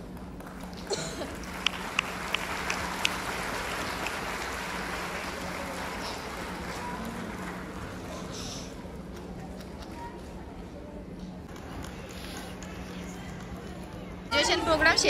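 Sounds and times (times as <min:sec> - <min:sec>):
audience applauding: 0:00.0 - 0:08.4
steady low hum: 0:00.0 - 0:15.0
sharp nearby hand claps: 0:01.5 - 0:04.5.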